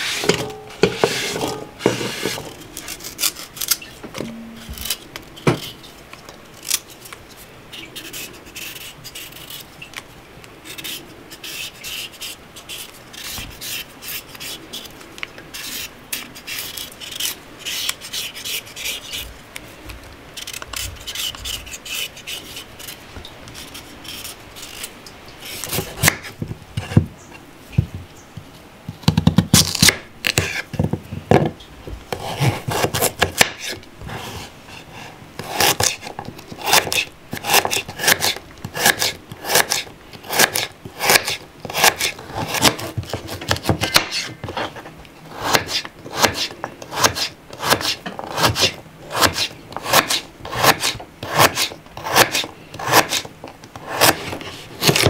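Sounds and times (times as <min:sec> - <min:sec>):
knife scraping carrot: 0:00.0 - 0:04.0, 0:07.8 - 0:09.7, 0:10.7 - 0:19.3, 0:20.4 - 0:27.0, 0:32.2 - 0:55.0.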